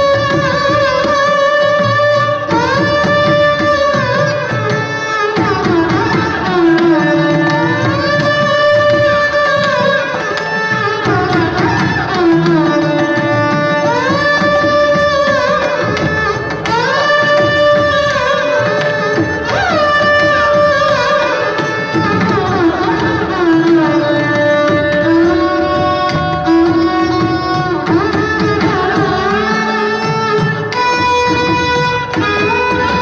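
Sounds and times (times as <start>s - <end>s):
violin duet melody: 0.0s - 33.0s
hand drum playing: 21.8s - 33.0s.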